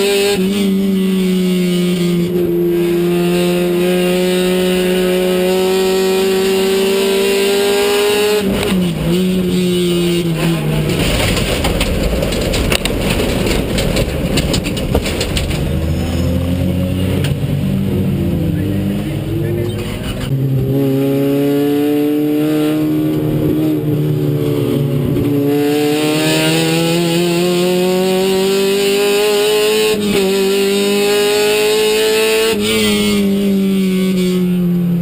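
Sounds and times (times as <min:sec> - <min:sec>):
race car engine revving: 0:00.0 - 0:35.0
rough crackling rattle: 0:10.7 - 0:15.8.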